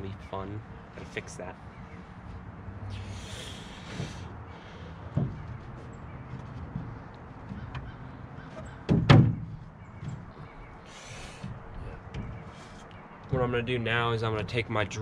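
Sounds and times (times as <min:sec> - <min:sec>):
wooden panel knocking on boat: 0:05.1 - 0:05.7, 0:08.9 - 0:10.6.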